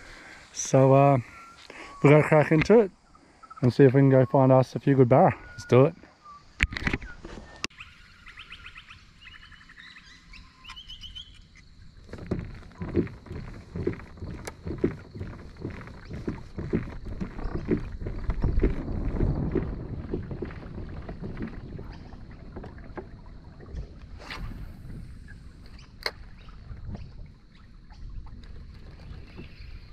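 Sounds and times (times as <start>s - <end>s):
birds chirping: 0.0s - 22.6s
water sloshing against kayak: 10.6s - 29.9s
wind gusts on microphone: 12.0s - 29.9s.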